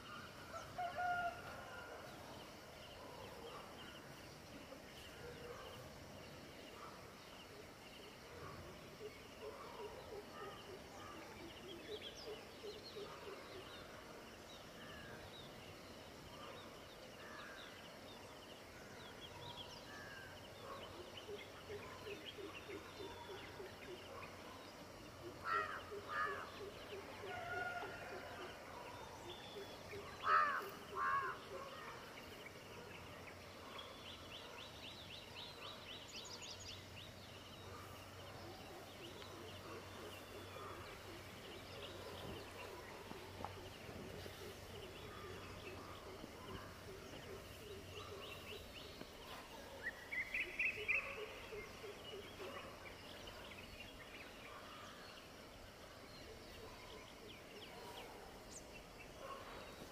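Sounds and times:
birds chirping and calling: 0:19.0 - 0:59.9.

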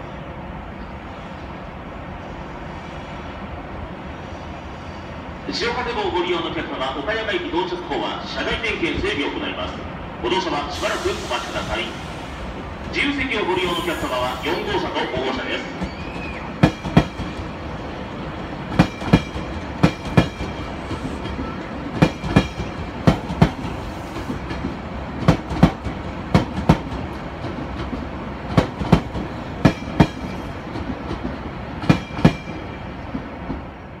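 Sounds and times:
train rolling rumble: 0:00.0 - 0:34.0
train wheels clicking over rail joints: 0:15.8 - 0:17.6, 0:18.4 - 0:33.6.

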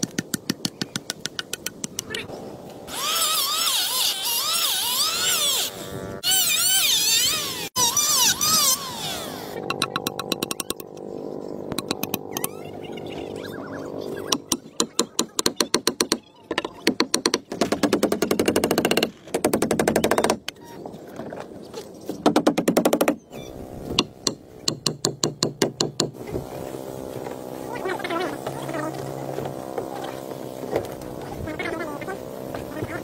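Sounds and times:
hammer driving nails into wood: 0:22.2 - 0:23.2, 0:24.0 - 0:26.2.

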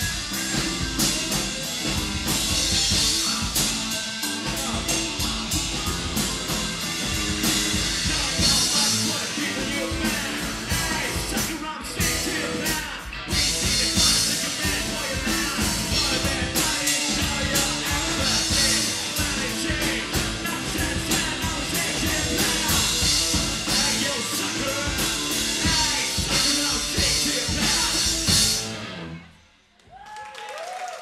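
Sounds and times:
rock band playing live: 0:00.0 - 0:29.6
person singing: 0:02.9 - 0:28.4
audience applause: 0:29.8 - 0:31.0.

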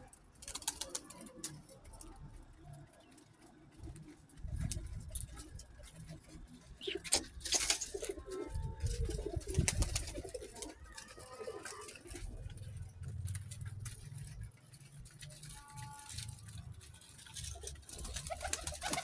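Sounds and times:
pigeons cooing: 0:03.8 - 0:13.6, 0:17.4 - 0:19.0.

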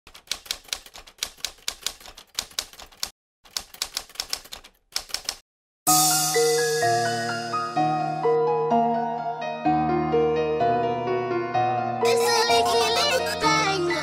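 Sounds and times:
typewriter key clicks: 0:00.1 - 0:05.4.

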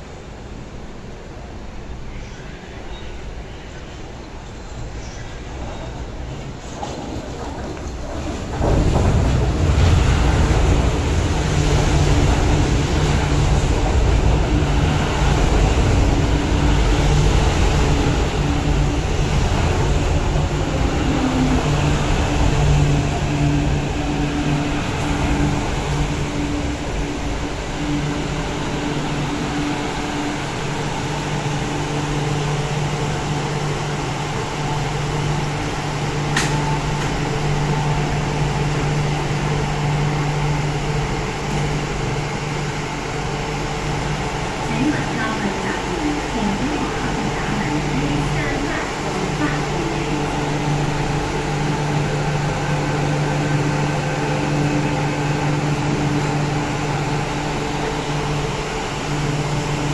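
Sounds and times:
train wheels rumbling on rail: 0:00.0 - 0:59.9
low electric motor hum: 0:08.1 - 0:59.9.

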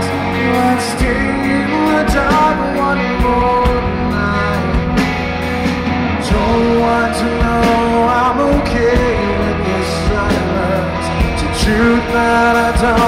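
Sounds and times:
bass guitar: 0:00.0 - 0:13.0
distorted electric guitars: 0:00.0 - 0:13.0
drum kit with cymbal hits: 0:00.0 - 0:13.0
man singing lead vocal: 0:00.0 - 0:13.0.

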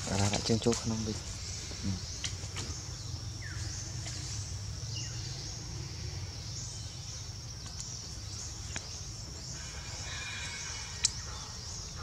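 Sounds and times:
insect buzz: 0:00.0 - 0:12.0.

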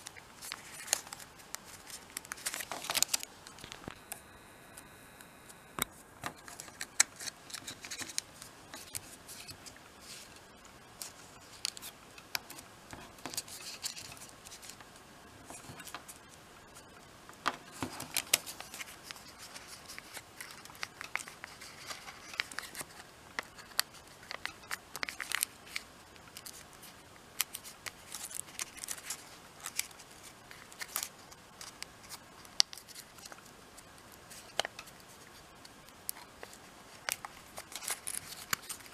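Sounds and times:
paper being folded and creased: 0:00.0 - 0:04.0, 0:06.2 - 0:16.9, 0:17.6 - 0:35.4, 0:36.0 - 0:38.9.

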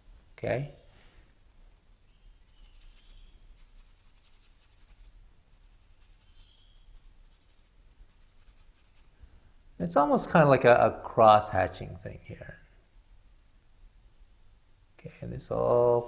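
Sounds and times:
paintbrush scratchy strokes: 0:02.4 - 0:09.2.

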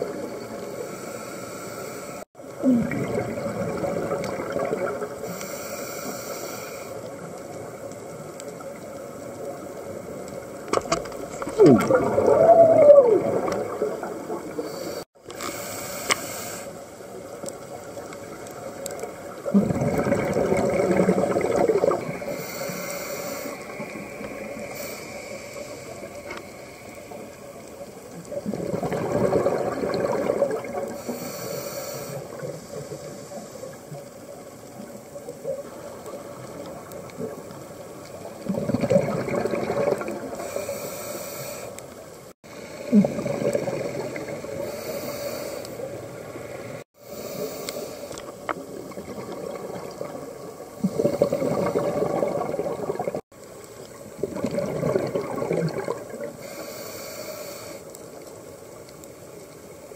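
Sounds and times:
regulator inhalation hiss: 0:00.5 - 0:02.3, 0:05.2 - 0:07.0, 0:14.6 - 0:16.9, 0:22.2 - 0:27.3, 0:31.0 - 0:33.8, 0:40.4 - 0:41.9, 0:44.6 - 0:48.4, 0:56.4 - 0:58.1
rush of exhaled bubbles: 0:02.5 - 0:05.4, 0:11.2 - 0:15.2, 0:19.2 - 0:22.8, 0:28.2 - 0:31.3, 0:35.4 - 0:40.6, 0:42.4 - 0:45.2, 0:48.6 - 0:56.5.

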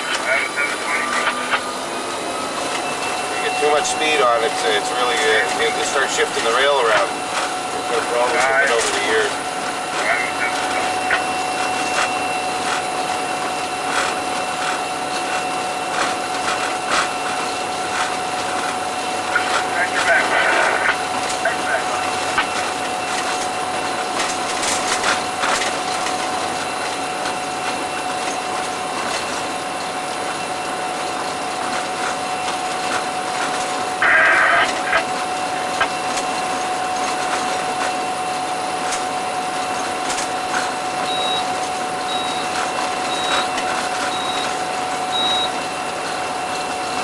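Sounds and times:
diesel locomotive cab drone: 0:00.0 - 0:47.0
short high beeps: 0:41.0 - 0:45.6.

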